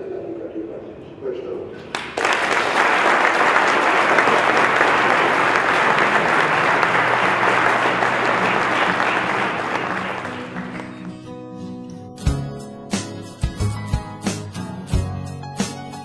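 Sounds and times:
audience applauding: 0:01.9 - 0:11.4.

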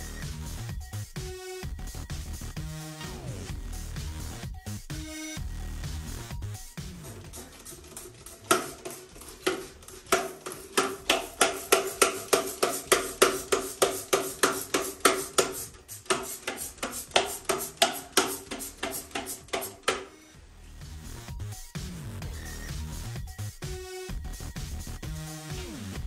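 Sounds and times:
trigger spray bottle spraying: 0:07.0 - 0:20.2.

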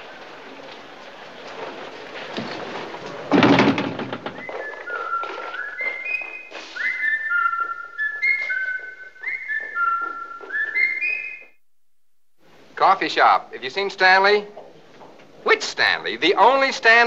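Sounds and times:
loud thunk: 0:03.3 - 0:04.4
person whistling a tune: 0:04.4 - 0:11.6.

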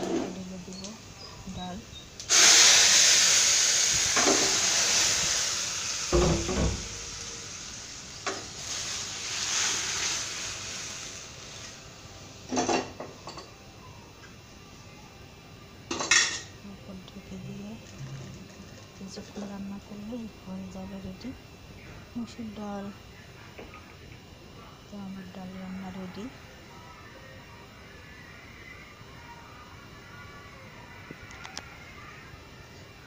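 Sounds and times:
loud sizzle in hot oil: 0:00.7 - 0:13.4.

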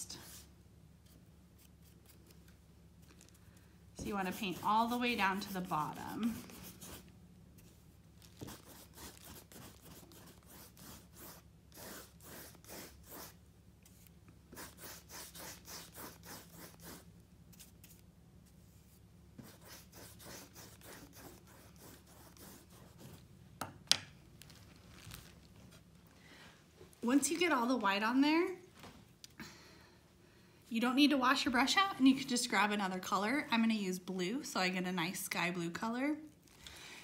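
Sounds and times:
paintbrush scrubbing on canvas: 0:04.0 - 0:23.2.

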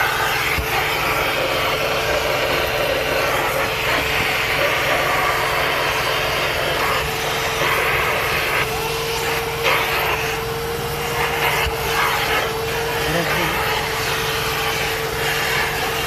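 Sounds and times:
vacuum cleaner running: 0:00.0 - 0:16.0.

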